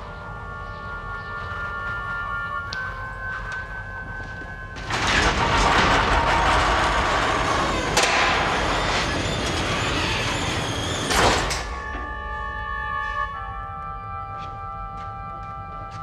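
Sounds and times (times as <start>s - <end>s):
sliding door grinding: 4.5s - 12.4s
door clunk: 4.8s - 12.2s.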